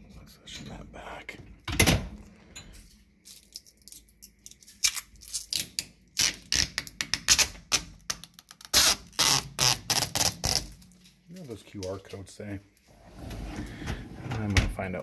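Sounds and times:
plastic film peeling crackles: 3.3 - 12.2.

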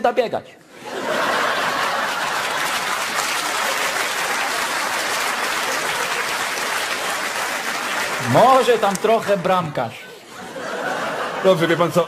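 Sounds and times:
audience applauding: 1.2 - 9.8.

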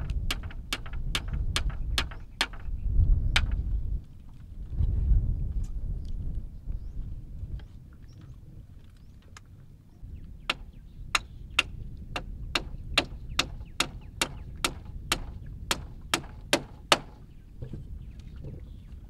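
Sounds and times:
hatchet striking wood: 0.0 - 2.7, 10.5 - 17.2.

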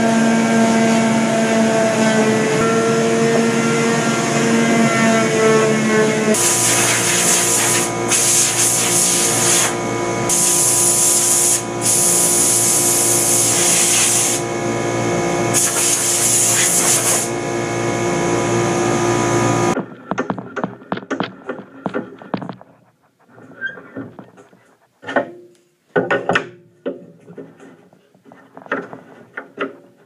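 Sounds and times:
motor hum: 14.2 - 24.9.

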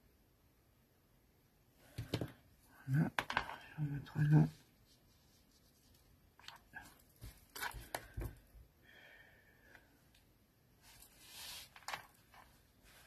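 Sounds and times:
cloth rubbing over paper: 4.5 - 6.1, 10.8 - 11.9.

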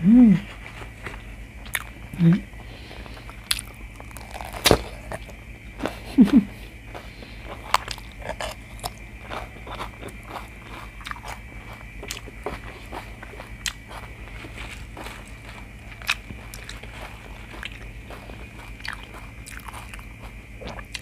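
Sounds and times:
person humming: 0.0 - 0.6, 2.1 - 2.5, 6.0 - 6.6
crunching bites into bell pepper: 3.2 - 6.4.

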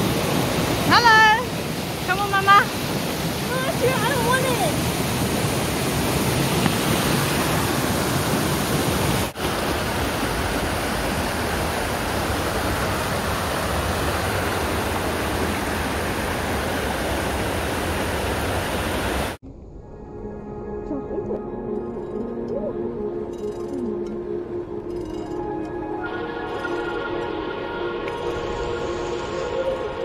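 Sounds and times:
creek water rushing over rocks: 0.0 - 19.4.

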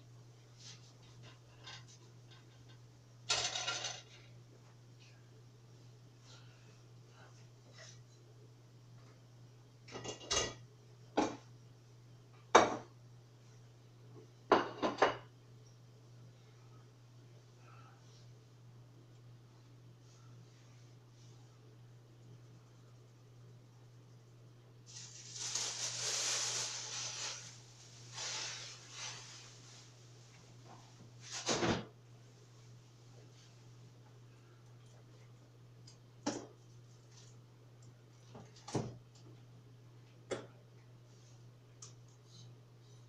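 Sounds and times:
steady low hum: 0.0 - 43.0
kitchenware knocking and clinking: 12.5 - 12.9, 14.5 - 15.3
rustling and scraping: 24.9 - 31.7.

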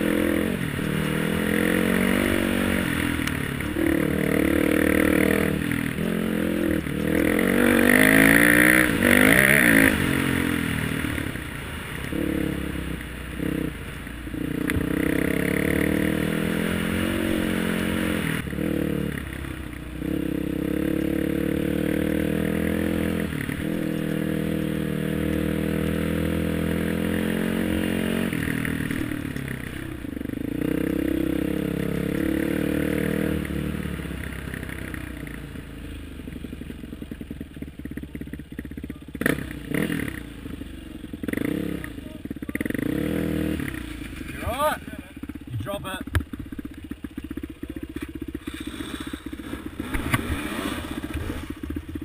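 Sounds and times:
trail bike engine: 0.0 - 52.0.

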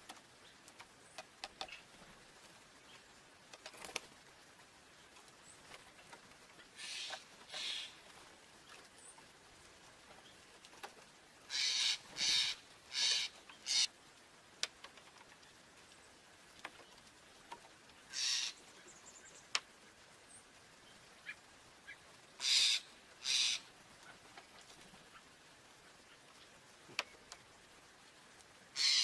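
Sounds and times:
songbirds calling harshly: 4.9 - 9.3, 11.5 - 13.9, 17.9 - 19.6, 20.2 - 27.4, 28.7 - 29.0
faint ticks: 14.5 - 18.1, 18.8 - 19.8, 23.9 - 28.6.

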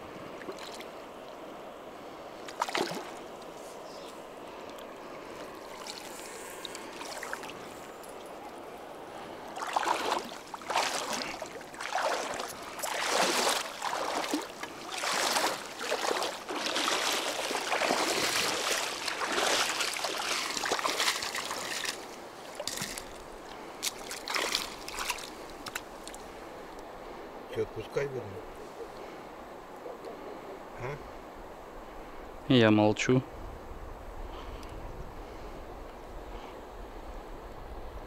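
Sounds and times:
splashes of wading: 0.2 - 1.4, 2.3 - 3.6, 4.5 - 26.7.

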